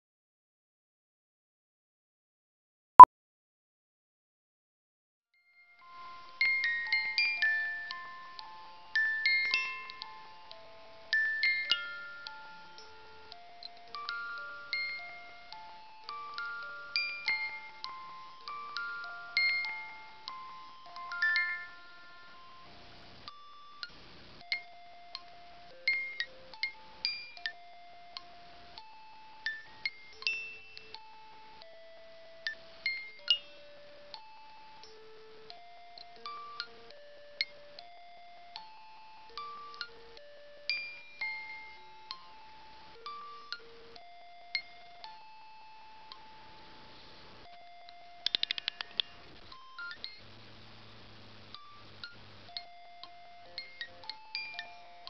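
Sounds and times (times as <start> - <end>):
music box eerie melody: 5.5 - 48.2, 51.6 - 55.0
steady hiss: 5.8 - 35.5, 45.2 - 55.0.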